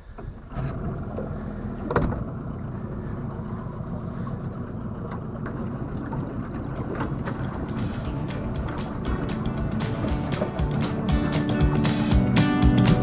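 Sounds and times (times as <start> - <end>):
water sounds: 0.0 - 13.0.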